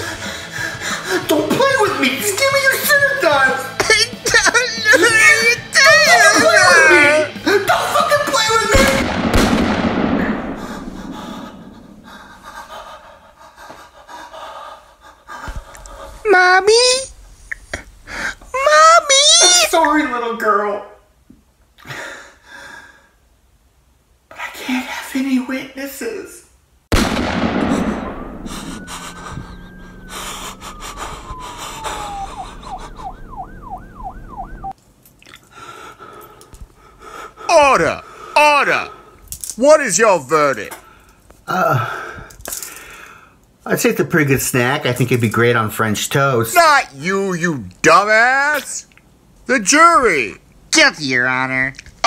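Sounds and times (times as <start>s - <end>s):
gunshot with echo: 8.8s - 12.4s, 26.9s - 29.0s
faint heavy breathing: 10.3s - 16.3s, 17.8s - 18.5s, 27.6s - 33.3s, 35.4s - 39.3s
siren wailing and yelping: 27.5s - 34.8s.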